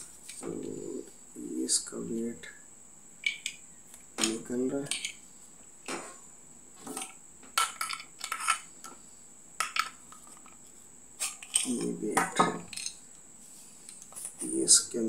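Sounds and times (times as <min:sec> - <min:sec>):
metallic clinks and knocks: 0:04.2 - 0:05.2.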